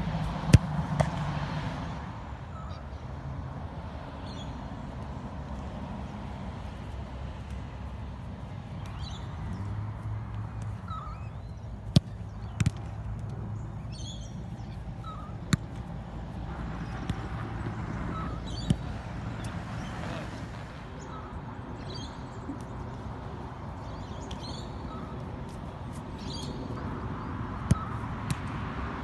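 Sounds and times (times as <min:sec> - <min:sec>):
soccer ball kicks: 0:00.2 - 0:01.4, 0:11.8 - 0:13.3, 0:14.0 - 0:19.5, 0:27.6 - 0:28.7
bird calls: 0:10.7 - 0:12.6, 0:13.5 - 0:15.5, 0:16.8 - 0:20.4, 0:23.8 - 0:25.2.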